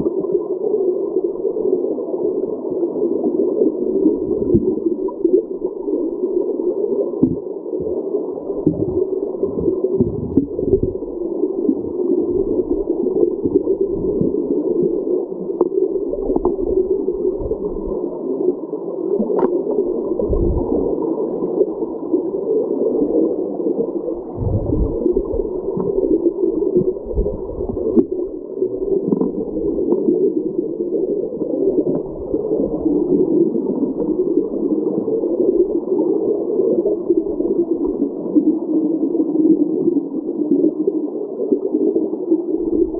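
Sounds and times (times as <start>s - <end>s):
muffled underwater water rush: 0.0s - 42.9s
low underwater thumps: 7.2s - 7.4s, 8.6s - 11.0s, 20.2s - 20.7s, 24.3s - 25.2s.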